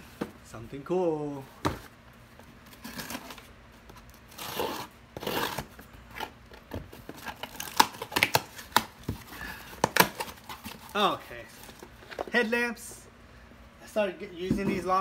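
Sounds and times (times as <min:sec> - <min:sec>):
packaging ripping: 0:07.2 - 0:08.9.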